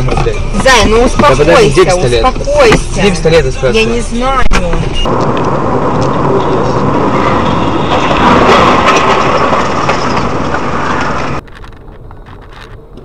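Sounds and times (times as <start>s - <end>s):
car road and engine noise: 0.0s - 13.0s.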